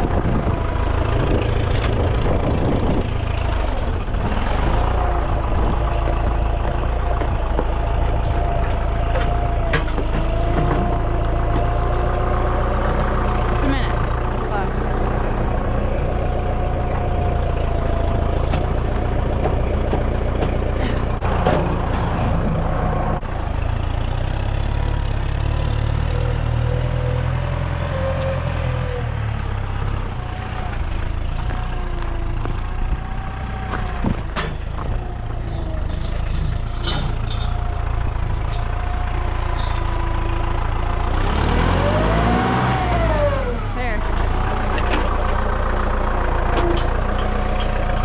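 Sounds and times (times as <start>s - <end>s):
tractor diesel engine running: 0.0s - 48.0s
sharp clicks and knocks: 6.0s - 11.8s.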